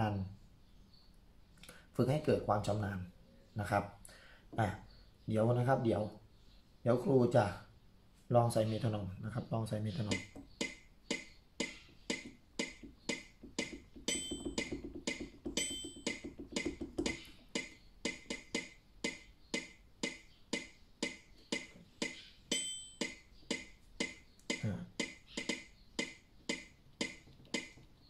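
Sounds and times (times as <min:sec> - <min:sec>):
metronome clicking: 0:10.1 - 0:27.8.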